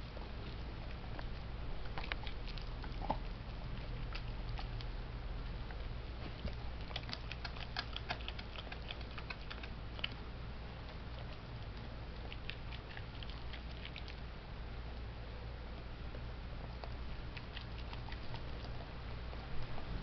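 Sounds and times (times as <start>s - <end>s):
dog teeth cracking on bone: 1.0s - 4.9s, 6.2s - 10.2s, 10.8s - 14.2s, 16.8s - 19.9s.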